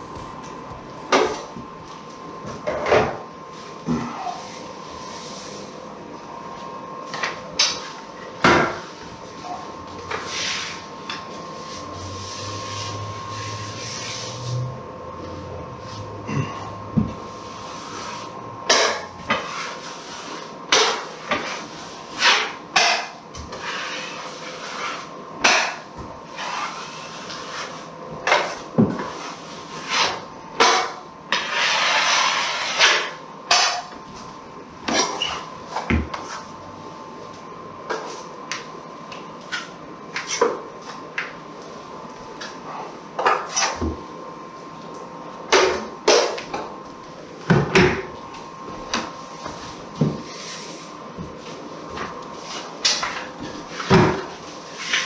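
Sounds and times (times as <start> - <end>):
drywall knife scraping metal pan: 18.7 - 33.9.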